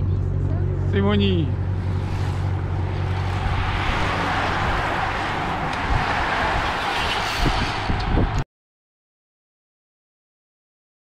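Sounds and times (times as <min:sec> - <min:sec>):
racing bikes rushing past: 0:01.5 - 0:08.4.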